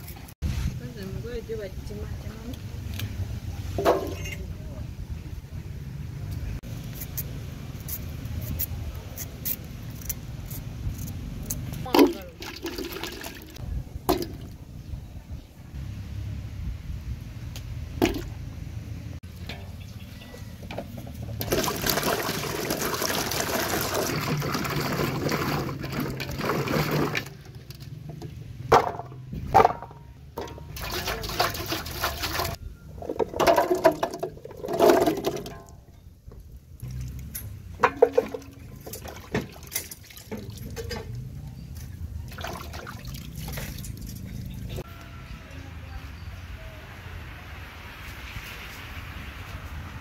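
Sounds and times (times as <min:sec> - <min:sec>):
water splashing: 0:11.8 - 0:14.6, 0:21.4 - 0:27.6, 0:30.5 - 0:32.6, 0:36.8 - 0:41.1, 0:42.3 - 0:44.8
water pouring into metal basin: 0:12.0 - 0:13.6, 0:21.4 - 0:27.5, 0:30.7 - 0:32.6.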